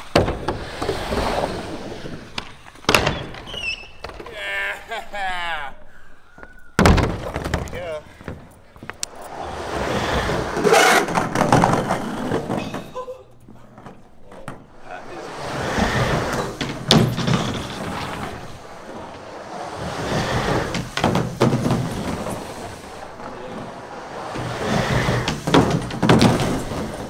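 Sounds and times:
skateboard wheels rumbling in tube: 0.0 - 2.8, 9.1 - 27.0
skateboard clack: 9.0 - 13.0, 14.3 - 27.0.

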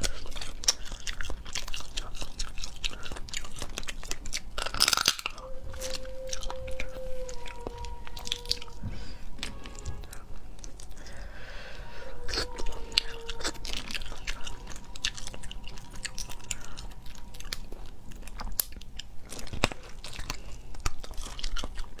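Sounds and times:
chewing and crunching: 0.0 - 22.0
crab shell cracking: 3.8 - 5.4.

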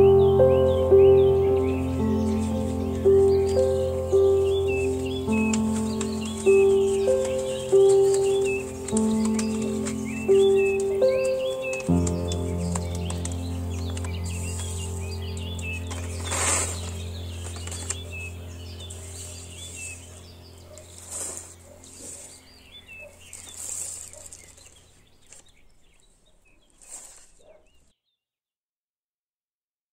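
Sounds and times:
steady low drone: 0.0 - 23.0
birds chirping: 0.0 - 27.9
dry rustles: 1.2 - 27.9.

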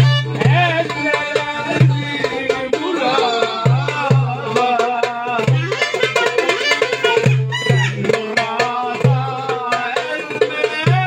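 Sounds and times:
hand-drum strokes: 0.0 - 11.0
clarinet melody: 5.5 - 8.2.

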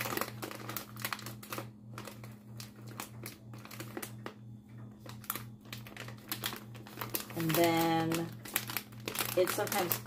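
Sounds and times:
low steady hum: 0.0 - 10.0
plastic bag crinkling: 0.0 - 10.0.

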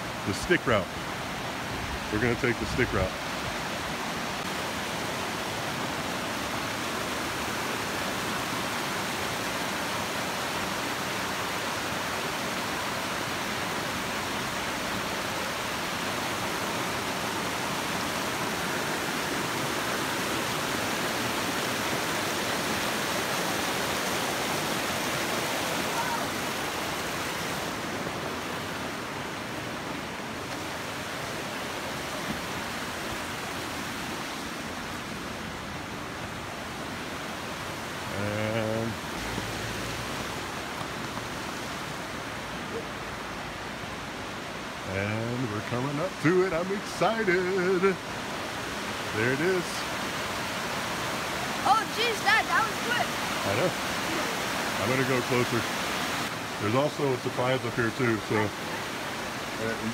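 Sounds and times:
creek rushing over rocks: 0.0 - 59.9.

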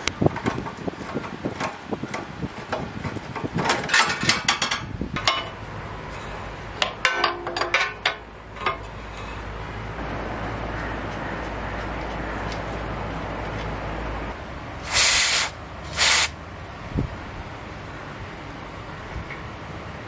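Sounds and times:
spanner clinking against bolts: 6.8 - 8.9.

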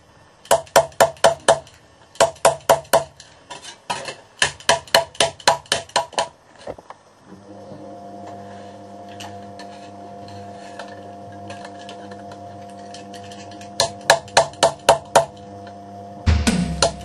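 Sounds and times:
electric motor hum: 7.2 - 17.0.

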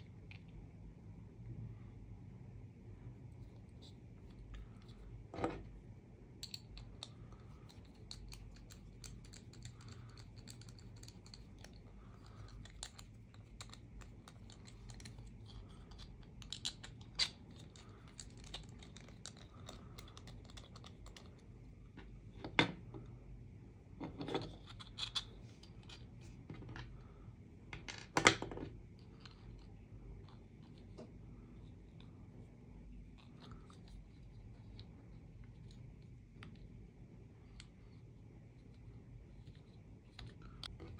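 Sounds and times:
plastic parts clicking and scratching: 6.4 - 21.4.

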